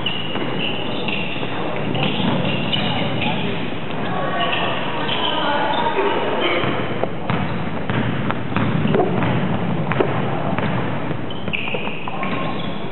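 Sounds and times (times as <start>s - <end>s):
basketball bouncing on wooden floor: 6.6s - 12.8s.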